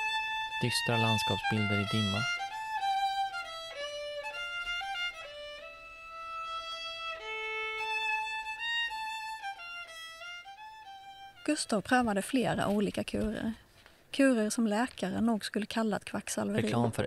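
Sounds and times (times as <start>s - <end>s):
solo fiddle playing slow folk melody: 0.0s - 12.1s.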